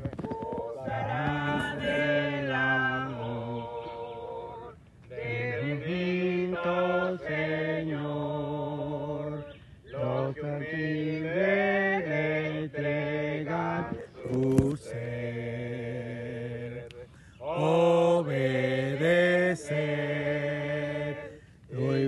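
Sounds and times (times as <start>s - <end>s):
group singing a cappella: 0.0s - 22.0s
sharp click: 14.3s - 14.8s.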